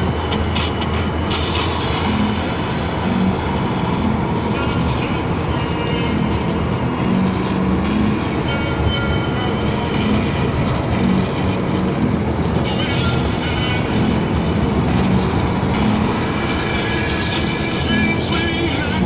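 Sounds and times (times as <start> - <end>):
truck engine drone in cab: 0.0 - 19.0.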